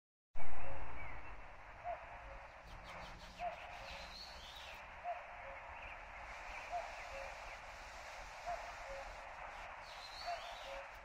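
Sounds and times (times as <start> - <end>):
bird chirps and whistles: 2.8 - 5.2, 9.8 - 10.9.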